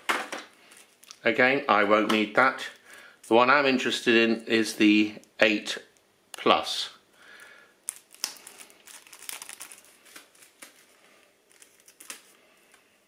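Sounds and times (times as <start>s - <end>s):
sachet tearing and crinkling: 7.8s - 12.9s.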